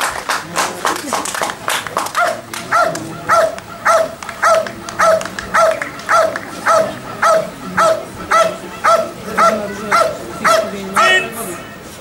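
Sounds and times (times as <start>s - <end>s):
dog barking: 2.1s - 11.1s.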